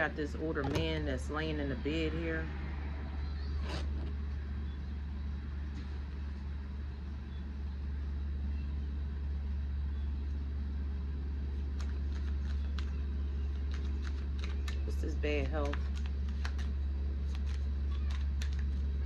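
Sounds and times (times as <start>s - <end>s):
low rumble: 0.0s - 19.0s
cards clicking while handled: 11.6s - 15.0s, 15.6s - 19.0s.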